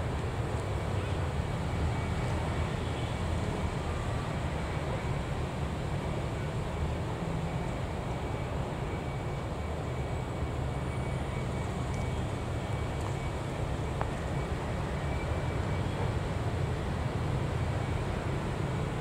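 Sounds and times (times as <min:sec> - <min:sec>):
road traffic passing: 0:00.0 - 0:19.0.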